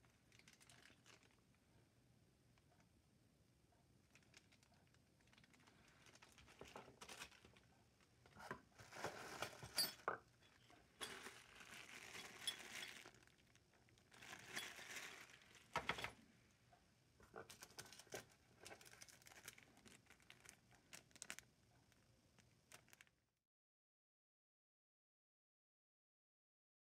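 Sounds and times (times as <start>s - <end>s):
plastic bag crinkling: 0.0s - 1.4s, 4.0s - 9.8s, 10.5s - 16.1s, 17.3s - 23.2s.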